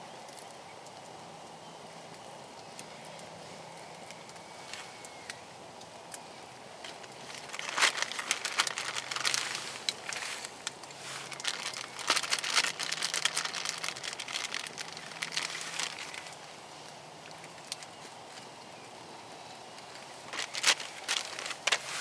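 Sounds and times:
plastic bag crinkling: 6.8 - 16.5, 19.8 - 22.0.

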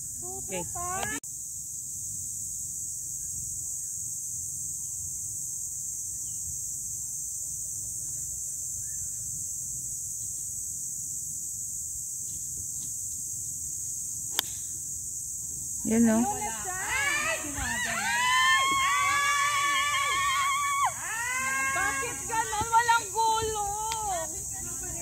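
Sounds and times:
outdoor background noise: 0.0 - 25.0
golf club striking ball: 14.3 - 14.8.

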